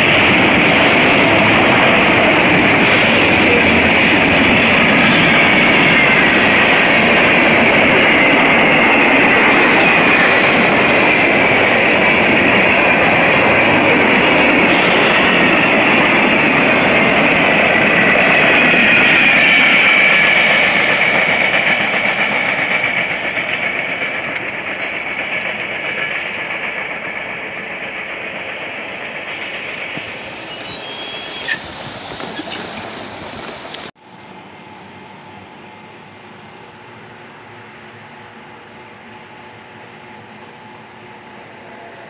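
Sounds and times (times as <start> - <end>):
freight train rolling past: 0.0 - 42.0
high wheel squeal: 24.7 - 27.1, 29.5 - 33.9.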